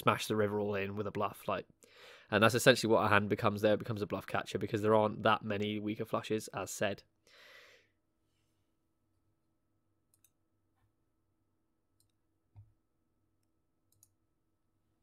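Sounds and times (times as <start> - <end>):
faint clicks: 10.1 - 10.4, 13.4 - 14.2.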